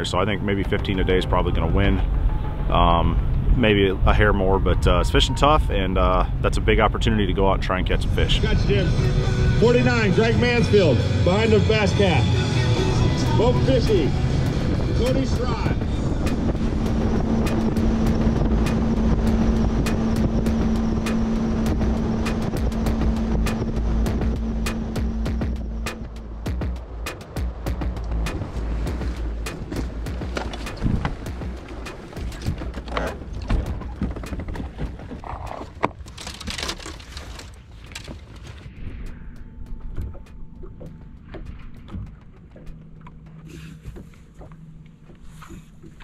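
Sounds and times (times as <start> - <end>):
outboard engine hum: 0.0 - 46.0
wind: 0.0 - 46.0
rushing water: 12.4 - 38.4
hull knocking on waves: 13.3 - 36.0.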